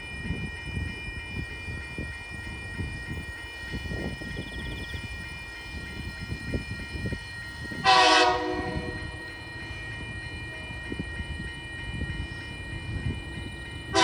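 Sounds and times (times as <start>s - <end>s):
locomotive horn blast: 7.8s - 9.2s.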